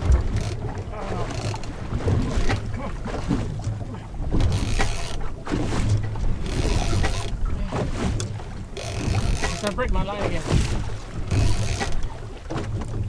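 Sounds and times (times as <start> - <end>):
outboard motor idling: 6.0 - 10.0.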